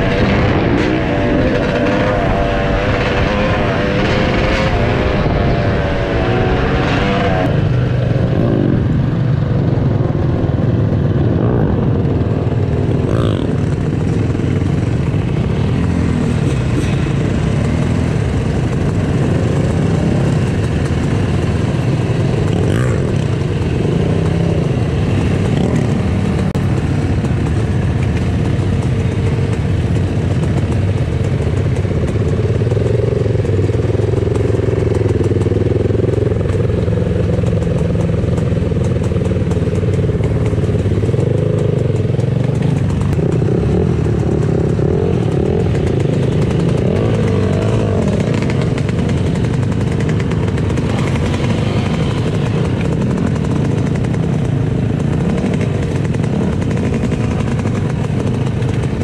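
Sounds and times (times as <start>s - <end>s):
dirt bike engine revving: 0.0s - 9.1s, 11.0s - 28.7s, 40.0s - 59.0s.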